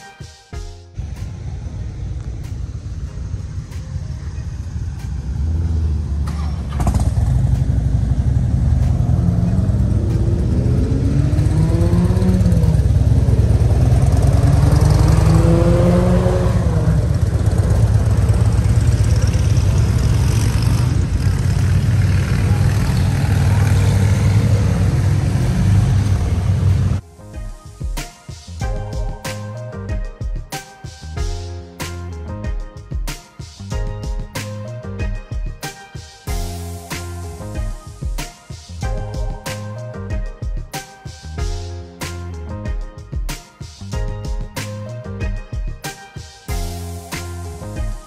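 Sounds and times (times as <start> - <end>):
motorcycle engine accelerating: 1.0 - 27.0.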